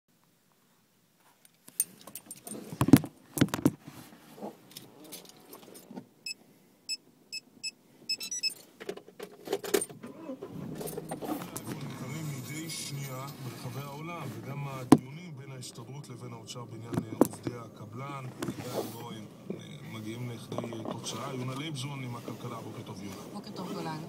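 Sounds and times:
keys jangling: 1.7 - 2.8
knocks and rattles in a car: 2.2 - 3.8, 16.8 - 19.6, 20.4 - 21.8
short electronic warning beeps: 6.9 - 8.6
low steady hum: 9.9 - 24.0.

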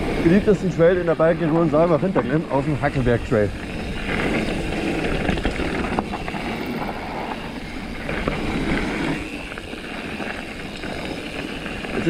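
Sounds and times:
tyre noise on dirt: 0.0 - 12.0
wind on microphone: 0.0 - 12.0
bike clicks and knocks: 3.5 - 12.0.

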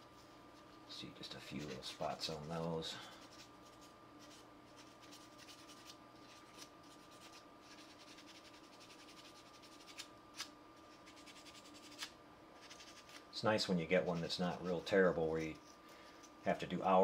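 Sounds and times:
small tool scraping resin: 1.5 - 13.2.

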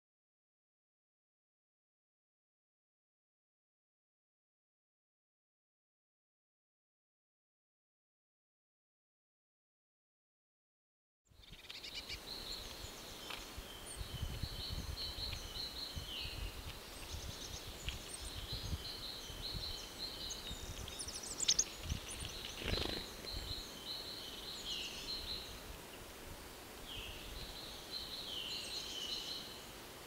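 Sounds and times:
songbirds chirping and trilling: 11.3 - 30.0.

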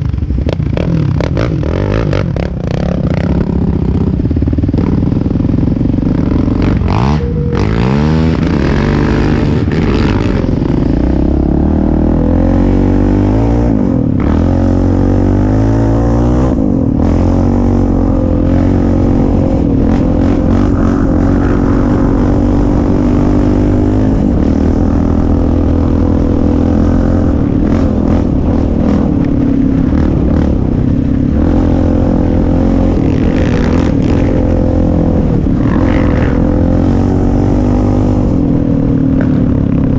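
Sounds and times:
atv engine revving: 0.0 - 39.9.

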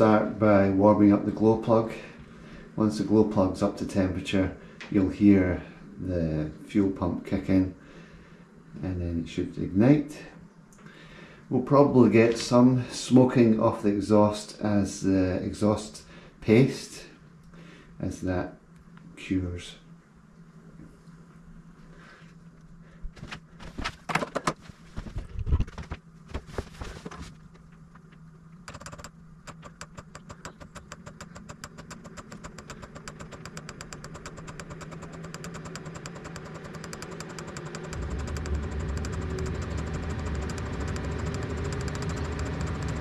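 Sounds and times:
fan hiss: 0.0 - 43.0
fuel pump rapid ticking: 28.7 - 43.0
deep burner rumble: 33.9 - 43.0.

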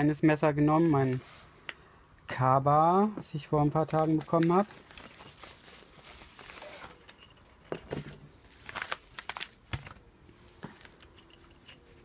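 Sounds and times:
paper envelope rustling: 3.6 - 7.0, 8.4 - 10.0
handling clicks and knocks: 6.8 - 12.0.

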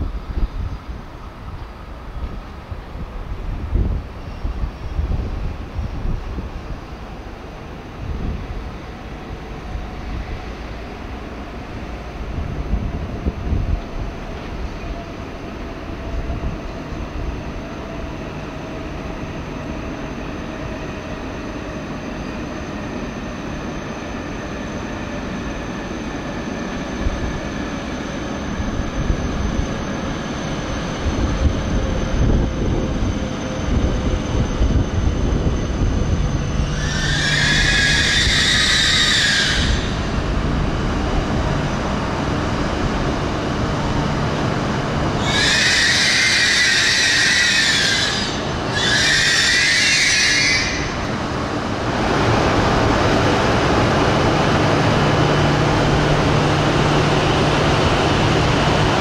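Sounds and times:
train rumbling: 0.0 - 59.0
train motor whine: 18.0 - 59.0
brake squeal: 36.4 - 40.1, 45.2 - 51.1.

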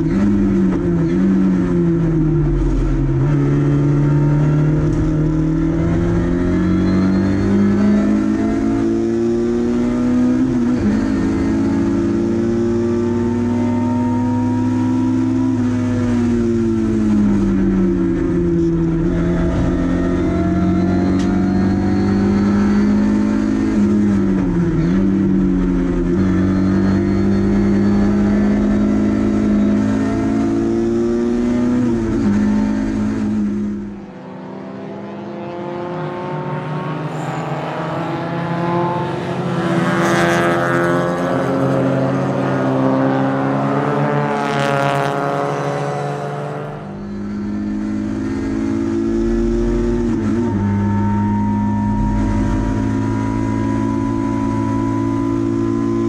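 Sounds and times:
race car engine running hard: 0.0 - 56.0.

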